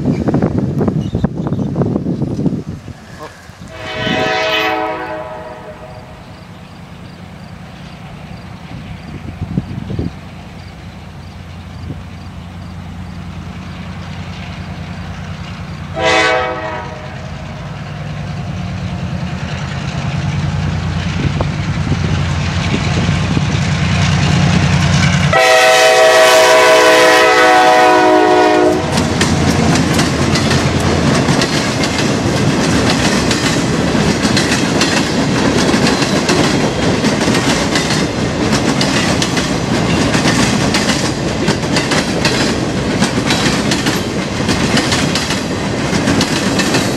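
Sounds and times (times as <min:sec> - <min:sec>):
diesel locomotive engine drone: 0:00.0 - 0:46.9
train horn blasts: 0:03.7 - 0:06.4, 0:15.9 - 0:17.7, 0:25.2 - 0:29.1
train wheels clacking on rails: 0:07.4 - 0:46.9.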